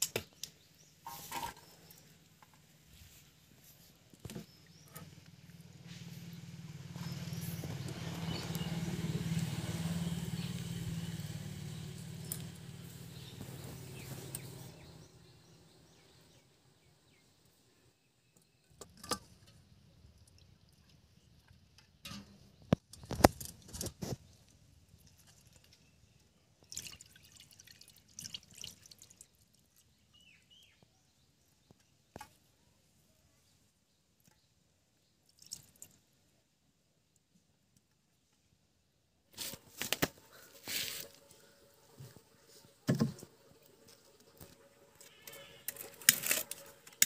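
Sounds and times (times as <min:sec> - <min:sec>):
vehicle engine passing: 0:05.0 - 0:16.4, 0:39.4 - 0:47.0.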